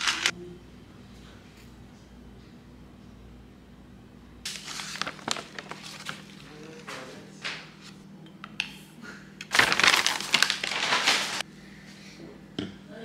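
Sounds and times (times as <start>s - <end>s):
plastic pouch crinkling: 0.0s - 0.3s, 4.5s - 6.8s, 9.5s - 11.4s.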